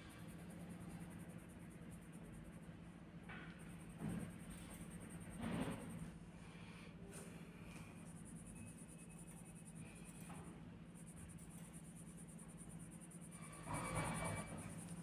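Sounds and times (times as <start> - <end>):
low steady hum: 0.0 - 15.0
pencil scratching on paper: 3.6 - 6.1.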